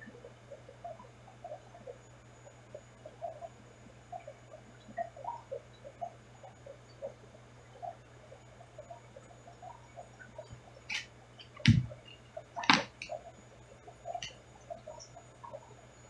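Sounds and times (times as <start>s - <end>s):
aquarium low hum: 0.0s - 16.0s
small pops in water: 10.9s - 13.2s
sharp knocks: 11.6s - 12.0s.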